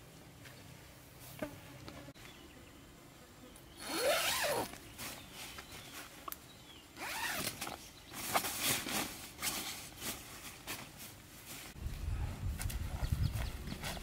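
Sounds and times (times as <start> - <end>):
tent zipper being unzipped: 3.8 - 4.8, 7.0 - 7.7
tent fabric rustling: 3.8 - 6.2, 7.0 - 11.8.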